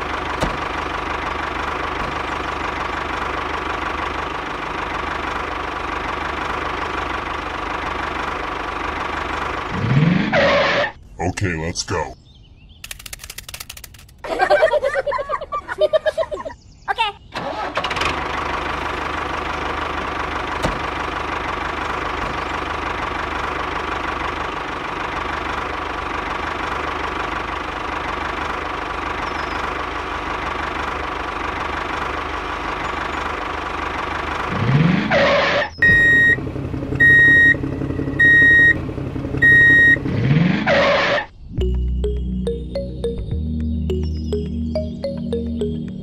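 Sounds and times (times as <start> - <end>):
small engine running with whine: 0.0 - 11.0, 17.5 - 42.0
short electronic beeps: 35.8 - 36.4, 39.4 - 40.0.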